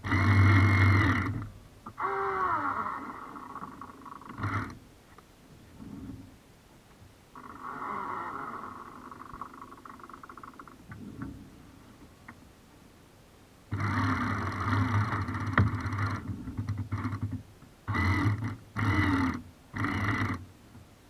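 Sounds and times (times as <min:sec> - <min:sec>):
winch servo running in bursts: 0:00.0 - 0:04.8, 0:13.7 - 0:20.5
faint whirr: 0:00.0 - 0:21.0.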